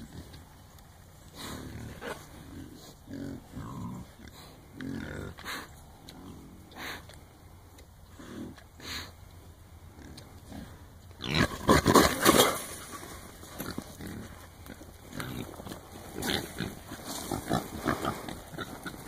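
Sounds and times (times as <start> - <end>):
hogs scrambling: 11.2 - 19.0.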